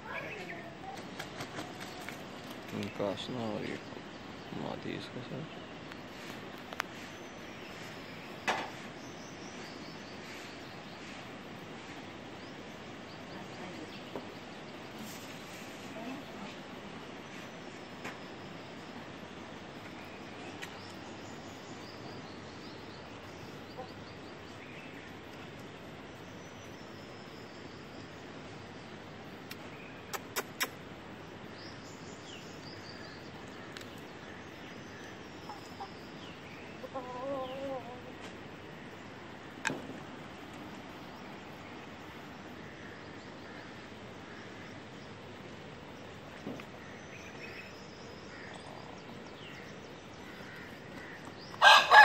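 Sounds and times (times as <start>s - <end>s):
faint high bird chirps: 0.0s - 3.8s
outdoor background hiss: 0.0s - 52.0s.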